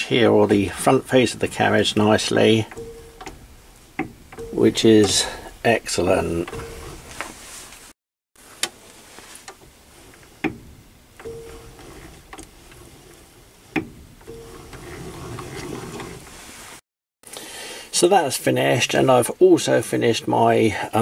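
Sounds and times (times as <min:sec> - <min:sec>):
sharp metallic clicks: 0:00.5 - 0:07.0.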